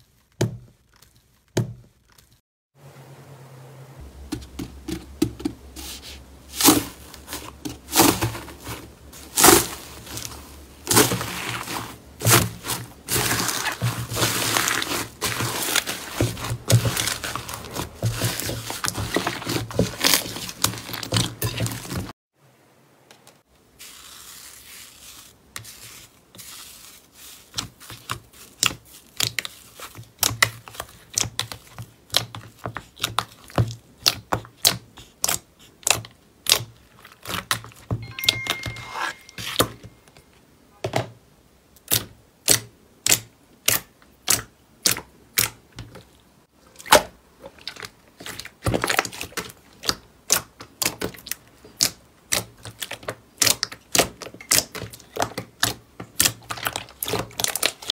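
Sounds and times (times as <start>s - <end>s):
soft crackly hiss of slime: 23.3s - 37.8s.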